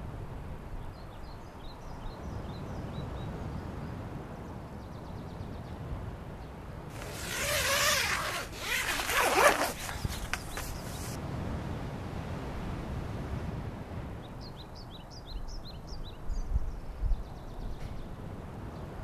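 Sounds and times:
zipper being pulled: 6.9s - 11.2s.

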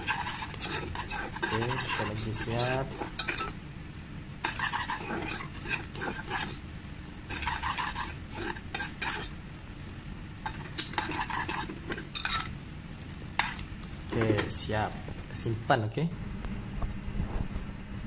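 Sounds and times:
caramel bubbling: 0.0s - 3.6s, 4.4s - 6.6s, 7.2s - 14.1s
spoon scraping saucepan: 0.0s - 3.6s, 4.4s - 6.6s, 7.3s - 9.4s, 10.4s - 12.5s, 13.3s - 14.5s.

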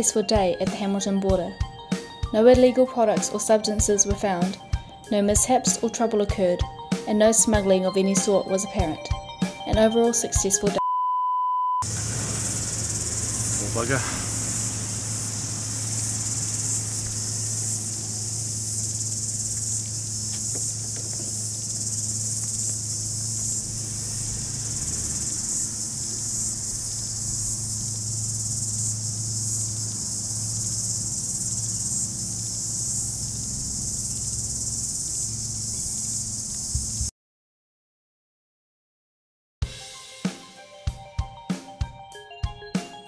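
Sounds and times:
cicadas chorus: 0.0s - 10.6s, 11.8s - 37.1s
low steady hum: 11.8s - 34.1s.

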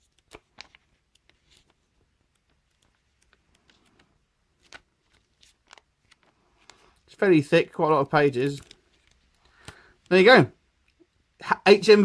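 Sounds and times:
paper pages turning: 0.0s - 10.2s.

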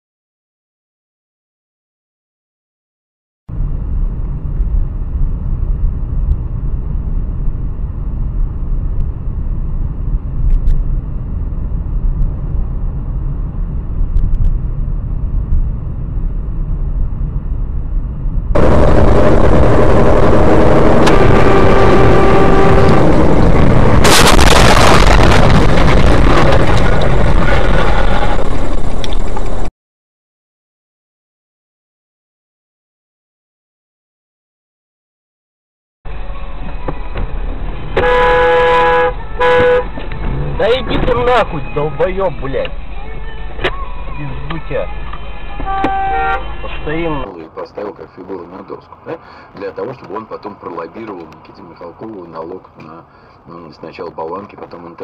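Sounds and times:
car road and engine rumble: 3.5s - 29.7s, 36.1s - 55.0s
harsh road noise: 3.5s - 29.7s, 36.1s - 55.0s
sharp crash impact: 18.6s - 29.0s
held horn-like tone: 20.0s - 23.6s, 37.8s - 40.6s, 44.8s - 47.3s.

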